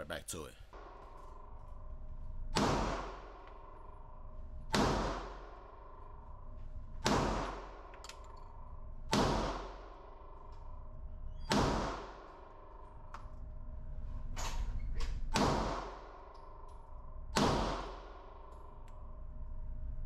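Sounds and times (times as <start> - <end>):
pistol shots with echo: 2.6 - 3.4, 4.7 - 5.6, 7.0 - 7.9, 9.1 - 9.9, 11.5 - 12.3, 15.4 - 16.2, 17.4 - 18.1.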